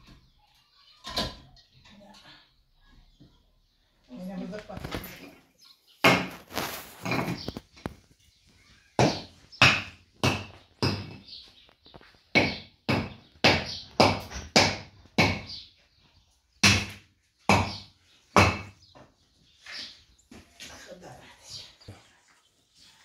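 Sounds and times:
hammer knocking on concrete block: 0:09.0 - 0:11.2, 0:12.3 - 0:15.5, 0:16.6 - 0:18.8.

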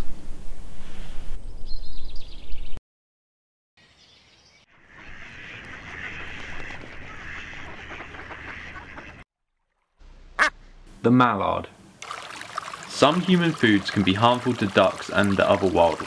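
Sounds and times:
high bird chirps: 0:03.8 - 0:06.2
ducks quacking: 0:04.8 - 0:09.2, 0:10.3 - 0:10.7.

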